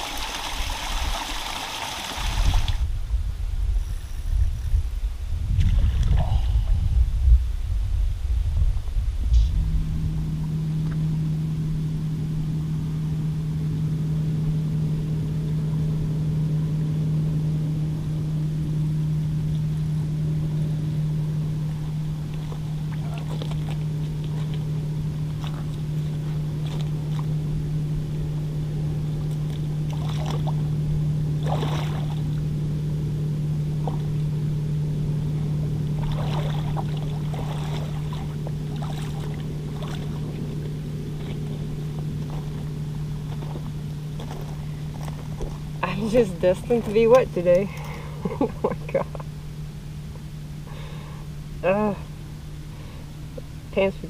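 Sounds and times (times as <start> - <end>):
low motor hum: 0.0 - 54.0
fish splashing in water: 22.3 - 27.3, 29.3 - 30.7, 31.4 - 32.4, 36.0 - 45.8.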